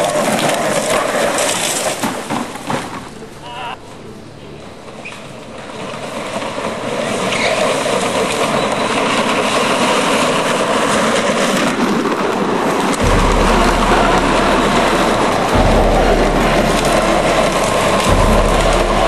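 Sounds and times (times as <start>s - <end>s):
plastic wheels rolling on asphalt: 0.0s - 13.4s
deeper rumble: 0.0s - 19.0s.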